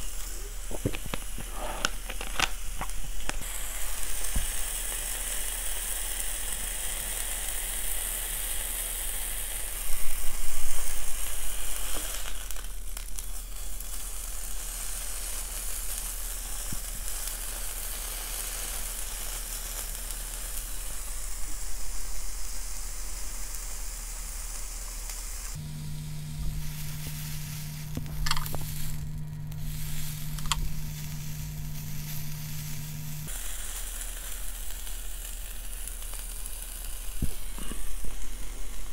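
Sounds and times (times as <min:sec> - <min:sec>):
beef sizzling on grill pan: 0:00.0 - 0:38.9
steady low hum: 0:09.0 - 0:38.9.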